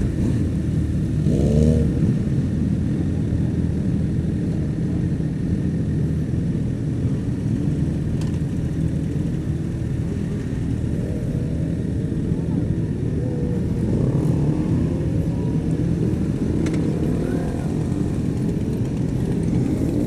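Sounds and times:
motorcycle engine revving: 0.0 - 2.5, 9.0 - 20.0
motorcycle engines at low revs: 0.0 - 20.0.

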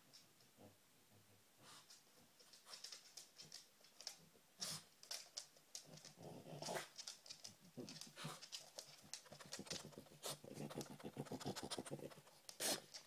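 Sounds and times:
dog snorting: 6.0 - 7.1, 7.8 - 13.0
dog sniffing: 8.0 - 13.0.

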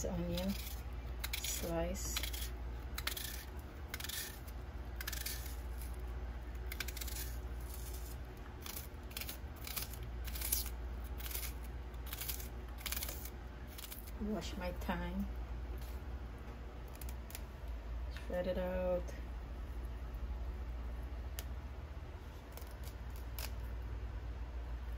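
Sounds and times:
knife slicing onion: 0.0 - 14.1
steady low hum: 0.0 - 24.9.

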